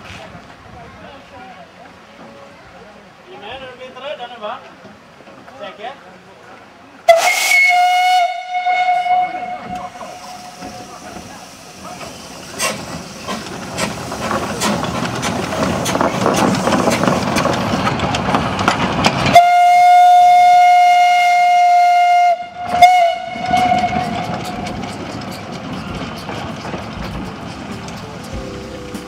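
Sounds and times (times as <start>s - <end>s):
steam whistle blast: 7.1s - 11.0s, 19.3s - 24.4s
steam locomotive chuffing: 7.1s - 29.0s.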